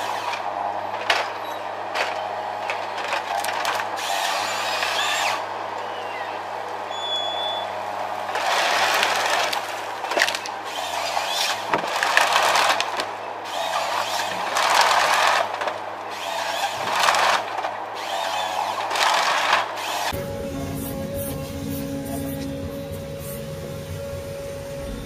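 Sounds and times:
branches cracking and snapping: 0.0s - 5.3s, 8.3s - 19.8s
machine engine hum: 0.0s - 25.0s.

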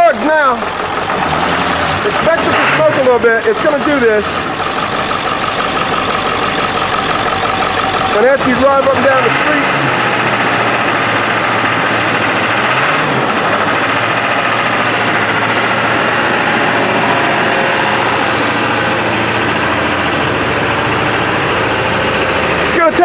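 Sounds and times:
diesel engine idling: 0.0s - 23.0s.

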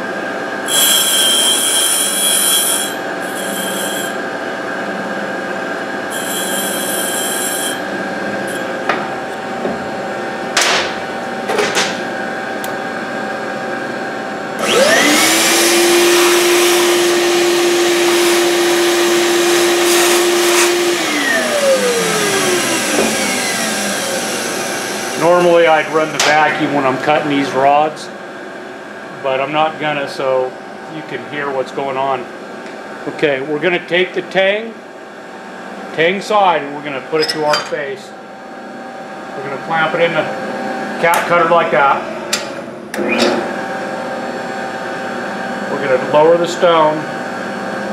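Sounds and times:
high hissing grinding: 0.7s - 4.2s, 6.1s - 7.8s
steady hum: 7.0s - 14.6s.

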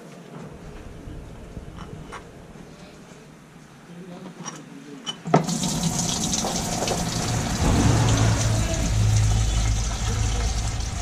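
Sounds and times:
low steady hum: 0.0s - 4.1s, 6.0s - 11.0s
oil pouring into plastic drum: 5.4s - 11.0s.

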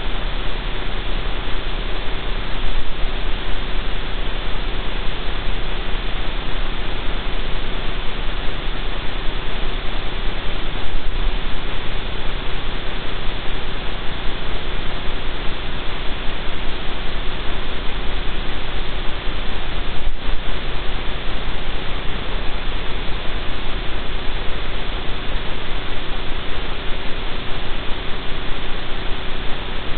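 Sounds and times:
faint steady hum: 0.0s - 29.9s
loud steady hiss: 0.0s - 29.9s.

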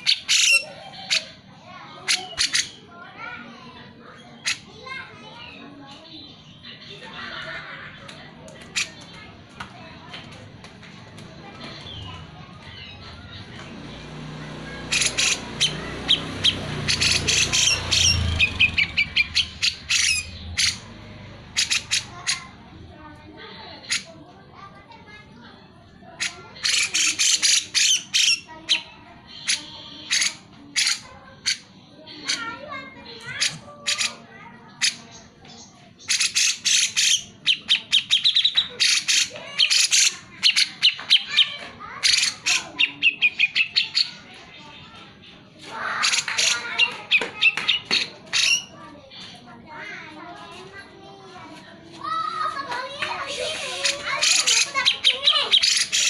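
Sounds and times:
bulbul singing: 0.0s - 1.4s, 14.5s - 22.6s, 26.2s - 32.4s, 34.8s - 44.2s, 53.2s - 56.0s.

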